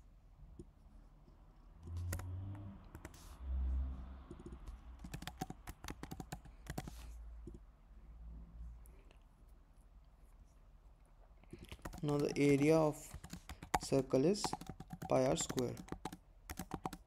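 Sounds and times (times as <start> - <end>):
keyboard typing: 1.8 - 3.3, 4.3 - 7.6, 11.5 - 17.0.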